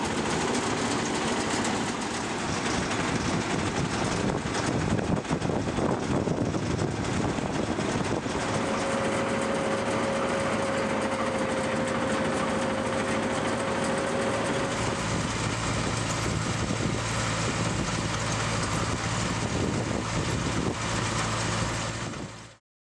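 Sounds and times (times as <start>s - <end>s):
harvester machinery running: 0.0s - 22.6s
steady mechanical whine: 0.0s - 22.6s.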